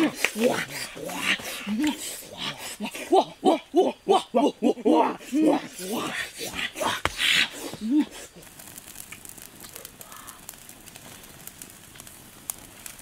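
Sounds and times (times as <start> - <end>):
man exclaiming: 0.0 - 7.1, 7.8 - 8.2
wood fire crackling and popping: 0.0 - 13.0.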